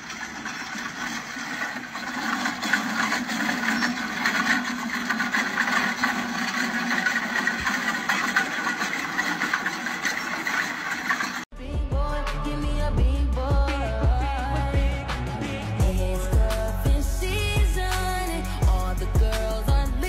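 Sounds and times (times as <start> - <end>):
boat trailer rattling on pavement: 0.0 - 11.5
pickup truck running: 0.0 - 11.5.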